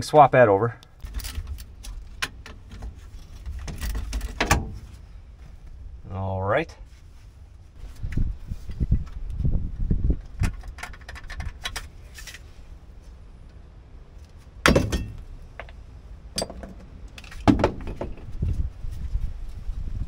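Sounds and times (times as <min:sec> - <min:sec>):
sharp knocks: 0:16.4 - 0:18.3.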